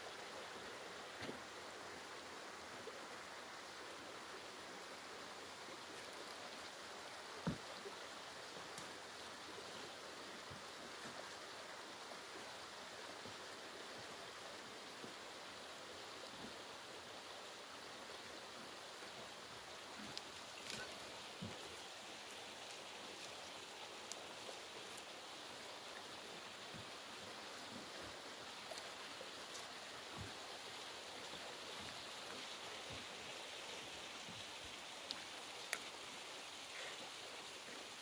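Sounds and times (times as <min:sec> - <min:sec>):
distant stream rushing: 0:00.0 - 0:38.0
faint clicks: 0:35.0 - 0:36.0.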